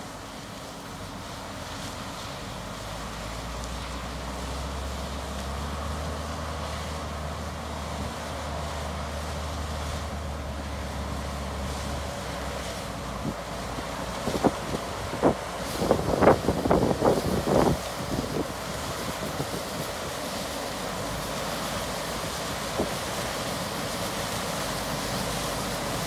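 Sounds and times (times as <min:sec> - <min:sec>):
distant diesel engines: 0:00.0 - 0:26.0
wind noise on microphone: 0:13.1 - 0:20.1.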